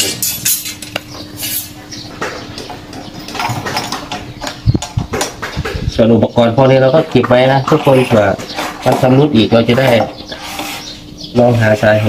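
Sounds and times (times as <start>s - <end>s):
metal parts clinking: 0.0s - 1.8s.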